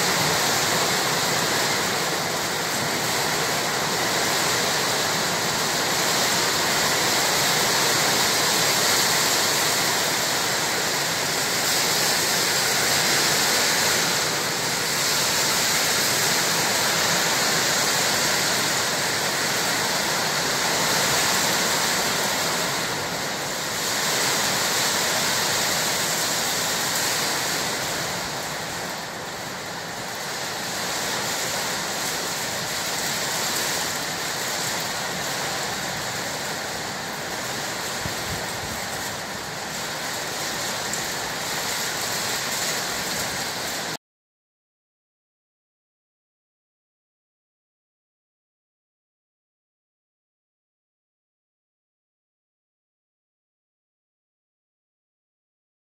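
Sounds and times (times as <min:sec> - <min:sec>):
heavy rain pouring: 0:00.0 - 0:44.0.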